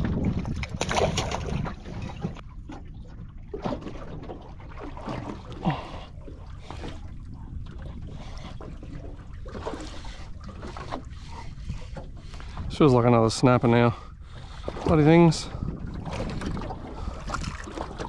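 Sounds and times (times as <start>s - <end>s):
low steady boat rumble: 0.0s - 18.0s.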